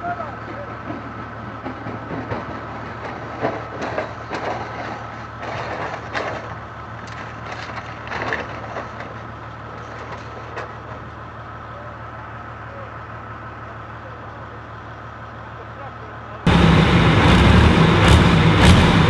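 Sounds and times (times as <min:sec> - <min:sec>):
tractor crunching impacts: 0:00.4 - 0:11.3
steady low drone: 0:16.5 - 0:19.0.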